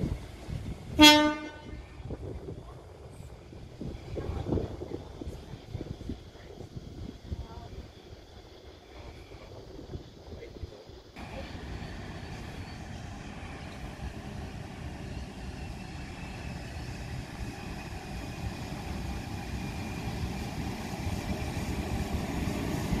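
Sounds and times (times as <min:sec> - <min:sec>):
train rumbling on rails: 0:00.0 - 0:23.0.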